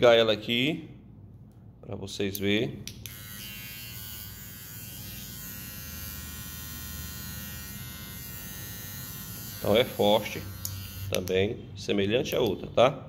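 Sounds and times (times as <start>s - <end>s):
hair trimmer buzzing: 3.0s - 11.3s.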